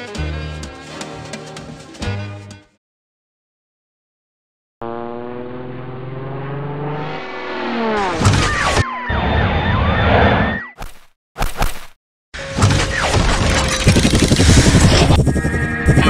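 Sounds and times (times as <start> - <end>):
rushing synthetic engine noise: 4.8 - 10.5, 12.4 - 16.0
synthetic many-toned hum: 13.7 - 16.0.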